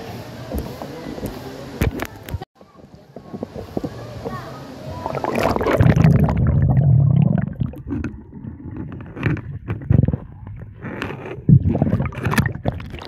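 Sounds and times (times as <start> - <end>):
underwater rumble of moving water: 3.0 - 13.0
dull underwater knocks and scrapes: 7.6 - 13.0
underwater thump: 11.5 - 13.0.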